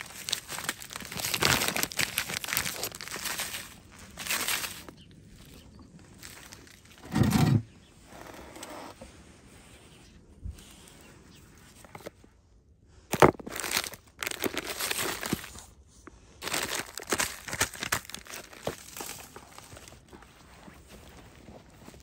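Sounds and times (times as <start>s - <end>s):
frozen plastic bags crinkling: 0.0s - 7.0s, 13.1s - 22.0s.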